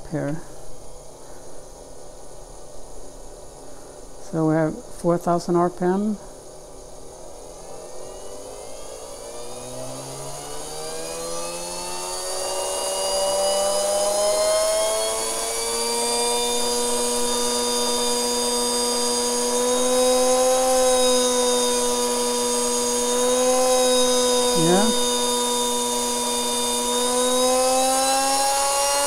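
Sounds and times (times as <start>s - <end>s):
electric motor whine revving up: 7.2s - 29.0s.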